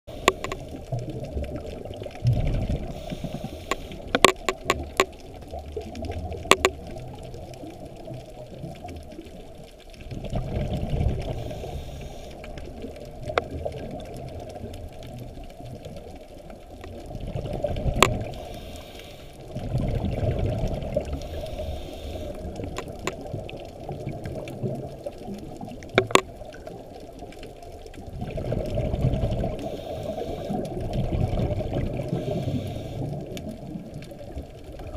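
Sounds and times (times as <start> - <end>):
underwater regulator bubbling: 0.1 - 7.4, 16.8 - 18.7, 19.5 - 25.0, 25.6 - 26.8
sharp clicks: 0.2 - 0.6, 3.6 - 5.2, 6.5 - 6.8, 18.0 - 18.2, 22.7 - 23.2, 25.9 - 26.3.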